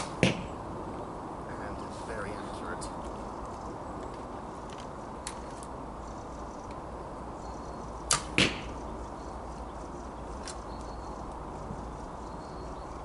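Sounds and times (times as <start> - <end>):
arrow thudding into target: 0.0 - 0.5, 8.1 - 8.8
bowstring snapping: 8.1 - 8.7.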